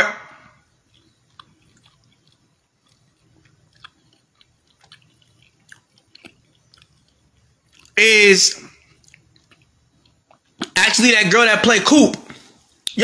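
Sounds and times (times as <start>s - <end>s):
mouth clicks and lip smacks: 0.6s - 8.0s, 8.6s - 10.8s, 12.2s - 13.0s.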